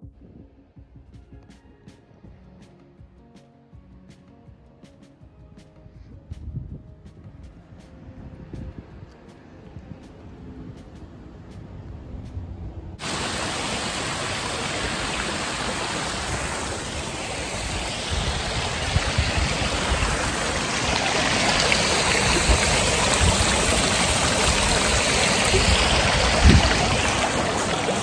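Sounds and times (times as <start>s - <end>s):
wind buffeting microphone: 5.9s - 15.1s, 16.0s - 28.0s.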